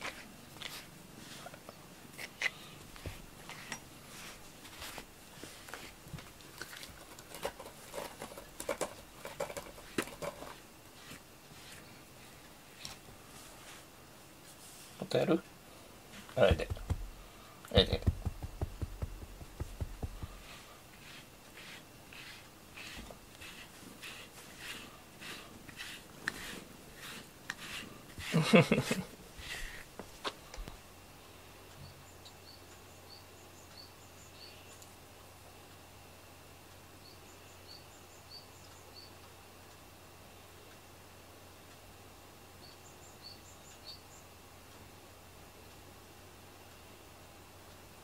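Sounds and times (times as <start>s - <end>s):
fingers scratching and tapping rug: 16.4s - 17.2s, 17.8s - 30.4s
rhythmic rubbing strokes: 17.8s - 29.9s.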